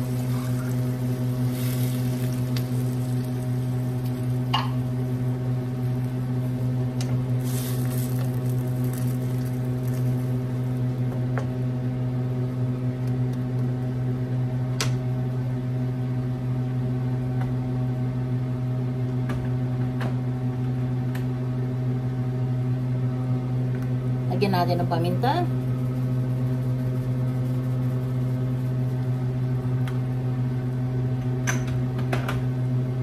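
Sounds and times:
appliance motor humming: 0.0 - 12.0.

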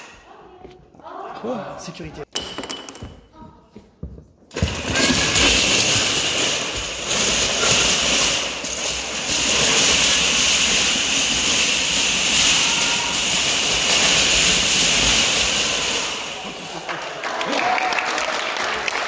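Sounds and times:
wooden planks clattering down: 4.5 - 17.1.

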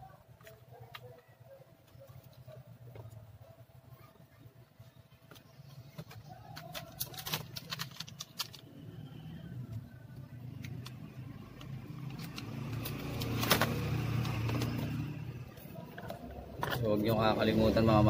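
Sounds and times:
plastic laptop case clicks: 13.2 - 14.7.

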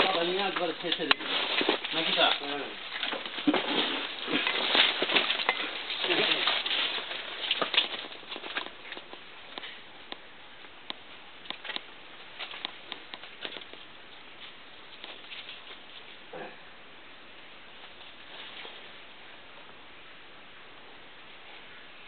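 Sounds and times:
footsteps crunching through dry leaves: 0.0 - 9.1.

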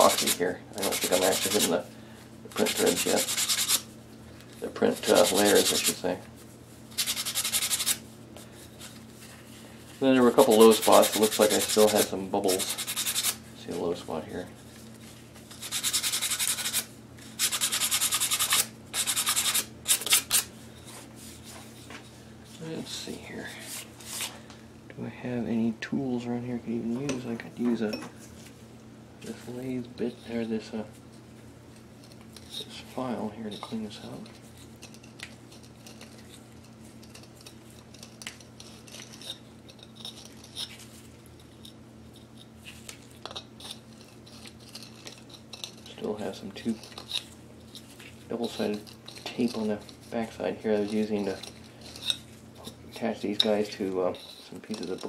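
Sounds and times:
hand file scraping plastic: 0.0 - 1.8, 2.6 - 3.8, 4.8 - 6.0, 10.2 - 13.4
sandpaper rubbing on plastic: 0.0 - 1.8, 2.6 - 3.9, 4.9 - 6.0, 6.9 - 8.0, 10.2 - 13.4, 15.5 - 20.5
steady low hum: 0.0 - 55.0.

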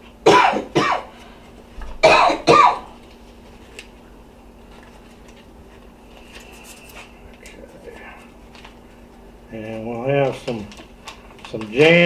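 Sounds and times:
faint steady hum: 0.0 - 12.0
person coughing: 0.3 - 1.1, 2.0 - 3.0.

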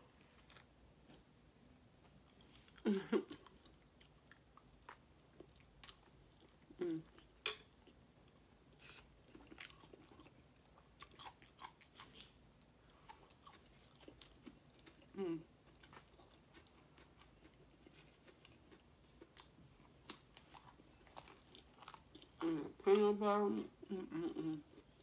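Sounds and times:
person chewing: 2.2 - 22.8.

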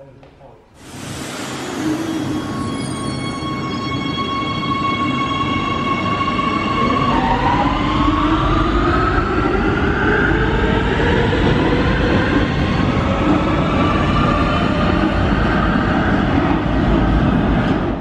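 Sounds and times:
train rumble: 0.8 - 18.0
steady electric tone: 0.9 - 8.2.

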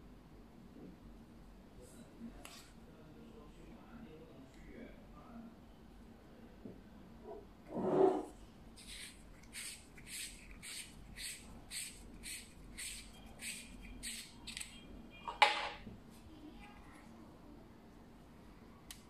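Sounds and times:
metal threads scraping: 7.7 - 14.9.

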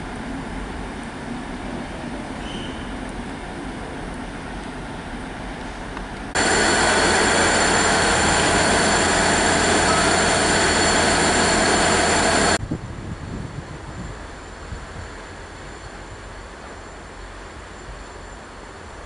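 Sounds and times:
diesel train engines running: 0.0 - 12.6
high-pitched whine: 6.4 - 12.6
station background noise: 6.4 - 12.6.

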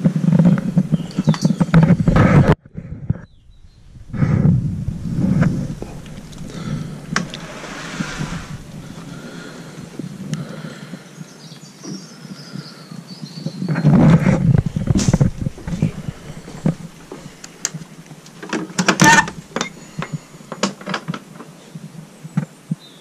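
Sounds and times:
loud rustle: 0.1 - 10.4, 13.8 - 20.8
footsteps: 0.3 - 10.3, 14.1 - 18.4
sharp scraping rattle: 0.3 - 10.3, 13.9 - 20.9
shed door opening: 4.0 - 10.0, 14.6 - 21.1.

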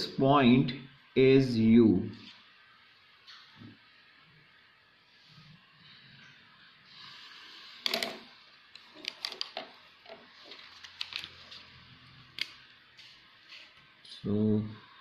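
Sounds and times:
paper rustling: 10.4 - 11.7.

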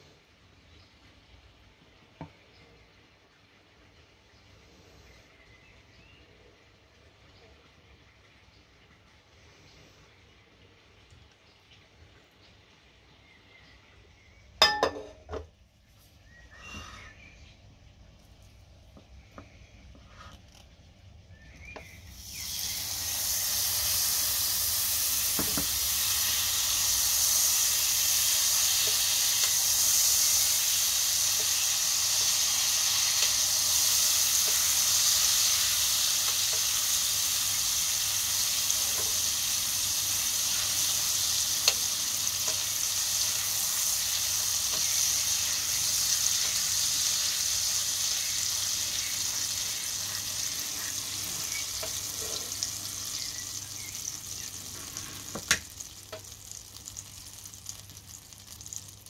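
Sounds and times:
butter sizzling in a frying pan: 21.3 - 59.0.

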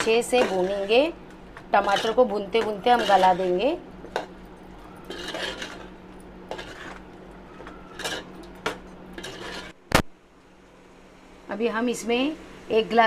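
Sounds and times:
spoon scraping metal pot: 0.0 - 9.8.

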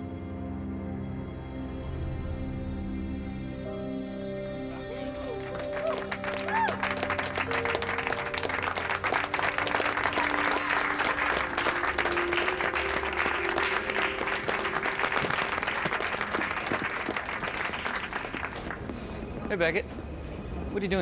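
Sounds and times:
background music of held notes: 0.0 - 18.2
people applauding: 4.8 - 19.0.

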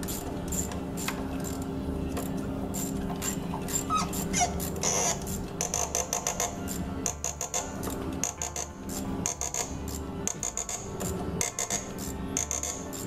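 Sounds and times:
squeaks from seized threads: 2.8 - 8.7.

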